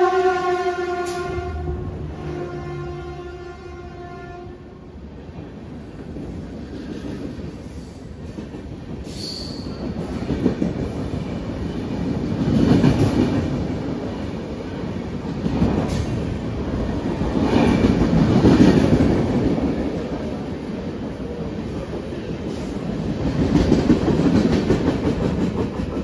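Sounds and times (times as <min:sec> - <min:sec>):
train wheels rumbling on rails: 0:00.8 - 0:26.0
high wheel squeal: 0:09.1 - 0:09.8.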